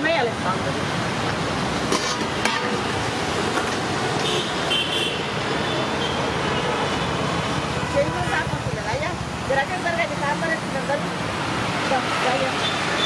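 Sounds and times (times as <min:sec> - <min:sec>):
road traffic: 0:00.0 - 0:13.0
vehicle horn: 0:02.4 - 0:02.8, 0:04.2 - 0:06.2.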